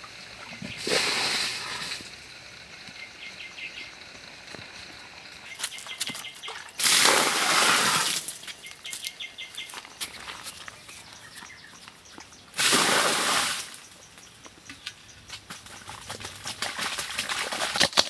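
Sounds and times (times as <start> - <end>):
water pouring into muddy pit: 0.0 - 2.6, 5.5 - 8.5, 12.6 - 13.8, 15.9 - 18.0.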